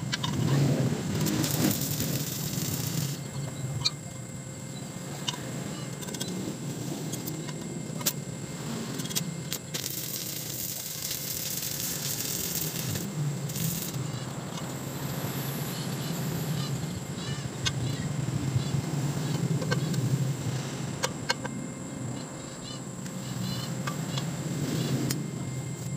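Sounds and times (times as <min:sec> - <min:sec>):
electrode striking ticks: 0:00.0 - 0:06.4, 0:08.9 - 0:20.2
welding arc crackling and hissing: 0:00.0 - 0:25.9.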